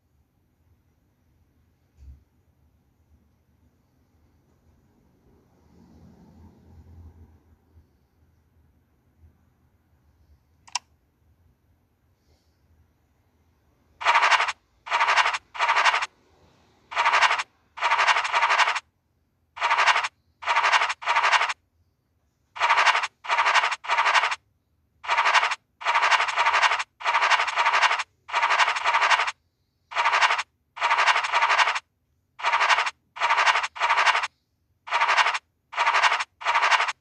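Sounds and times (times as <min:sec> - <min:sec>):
short bursts of scratching: 0:14.0 - 0:16.1, 0:16.9 - 0:18.9, 0:19.6 - 0:21.6, 0:22.6 - 0:24.4, 0:25.0 - 0:34.3, 0:34.9 - 0:37.0.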